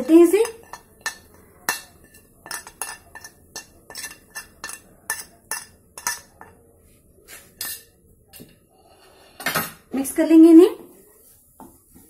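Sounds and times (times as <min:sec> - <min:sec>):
spoon clinking on metal pot: 0:00.3 - 0:06.6.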